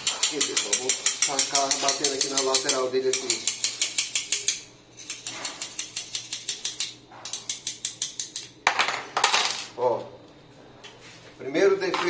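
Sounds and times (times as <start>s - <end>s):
metal scraping rasps: 0.0s - 8.3s
rapid metal-on-metal tapping: 0.0s - 8.6s.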